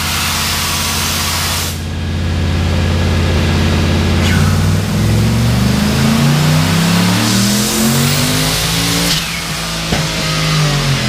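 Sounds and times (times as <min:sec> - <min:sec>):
engine revving at full throttle: 0:02.3 - 0:11.0.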